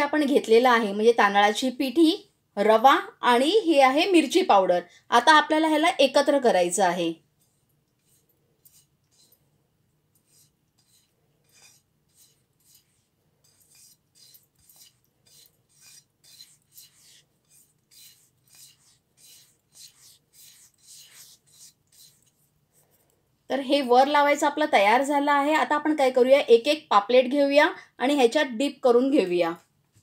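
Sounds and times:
fingers rubbing dry flour: 7.4 - 9.4, 10.2 - 23.0.

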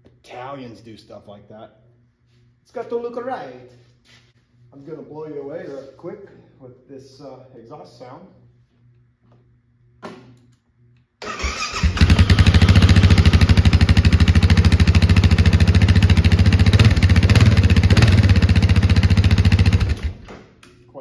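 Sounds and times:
electric starter cranking: 11.2 - 14.0, 17.3 - 20.3
motorcycle engine idling: 11.8 - 20.0.

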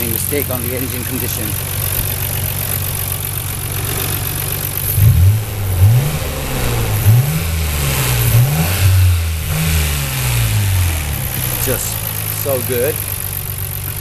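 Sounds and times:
car engine idling and revving: 0.0 - 14.0.

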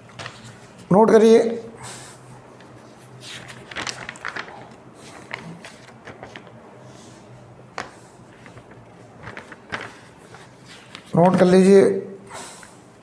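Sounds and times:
paper rustling: 0.0 - 0.9, 2.5 - 11.7.

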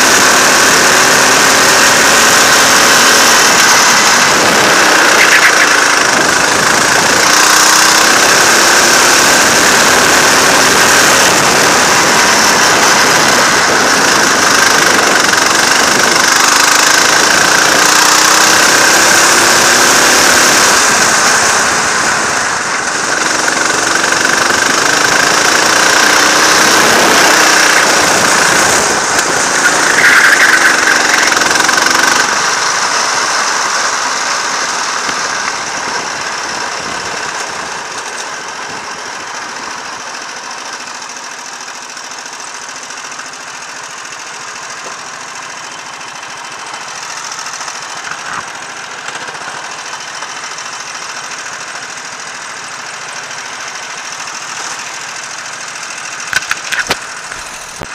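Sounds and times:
rushing wind noise: 0.0 - 39.8
go-kart engine revving: 0.0 - 57.9.

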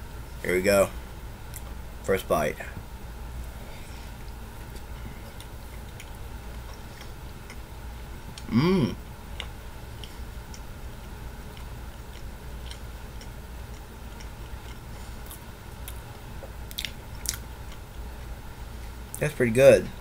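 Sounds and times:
steady low hum: 0.0 - 20.0
person humming mm: 8.4 - 9.0
mouth clicks chewing: 11.5 - 17.8.

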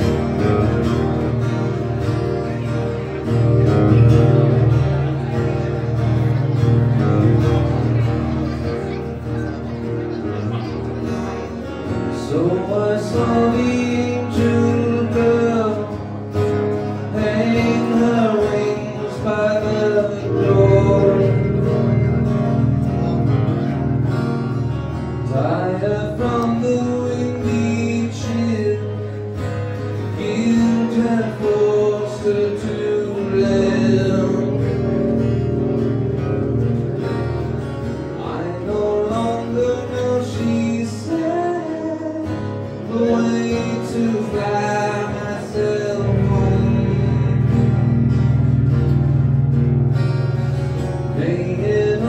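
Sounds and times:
acoustic guitar strumming: 0.0 - 52.0
man singing: 11.4 - 23.8, 25.2 - 36.8, 37.9 - 48.8, 50.8 - 52.0.

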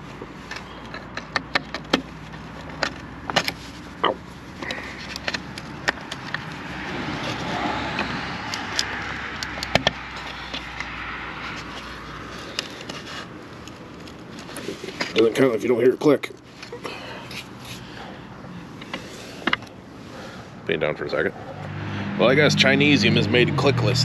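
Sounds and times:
broad rushing noise: 4.7 - 13.4.

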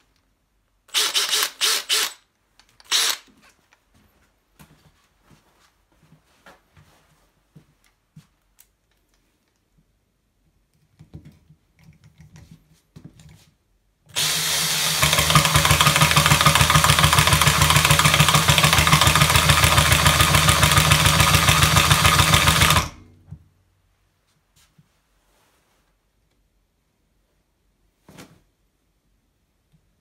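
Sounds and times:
cordless drill rattling hammer: 0.9 - 2.2, 2.8 - 3.3, 14.1 - 23.0.

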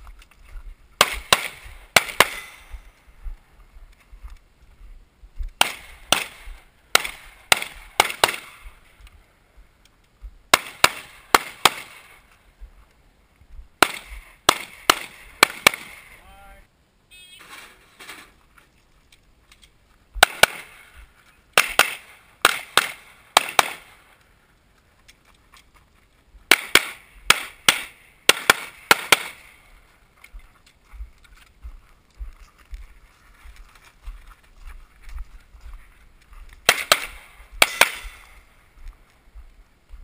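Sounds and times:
pistol shots: 1.0 - 2.8, 5.6 - 8.7, 10.5 - 12.2, 13.8 - 16.2, 20.2 - 24.0, 26.5 - 29.6, 36.6 - 38.4.

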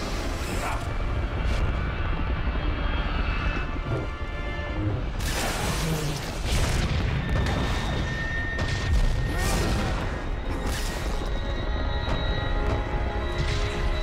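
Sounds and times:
film soundtrack music: 0.0 - 14.0
explosions: 5.2 - 11.2.

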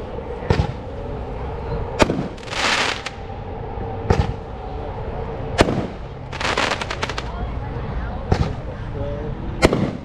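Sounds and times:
firework bangs: 2.0 - 3.2, 5.6 - 7.3, 9.6 - 10.0
firework hissing rush: 2.0 - 3.2, 5.6 - 7.3.

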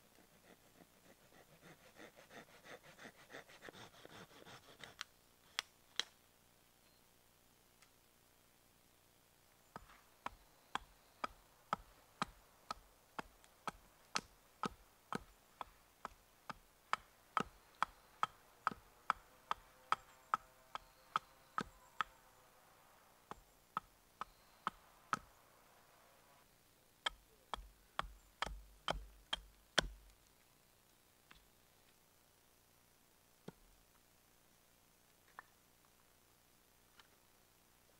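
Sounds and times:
hatchet chopping wood: 9.8 - 22.1, 27.1 - 30.1.

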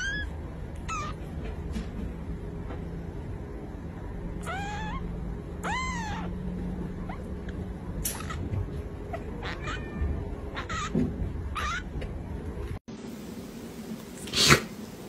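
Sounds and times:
kittens mewing: 0.0 - 1.3, 4.4 - 12.0.

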